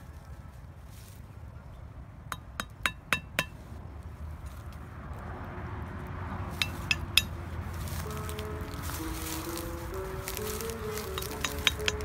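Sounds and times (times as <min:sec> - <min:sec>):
sharp clinking taps: 0:06.6 - 0:07.4, 0:11.2 - 0:12.0.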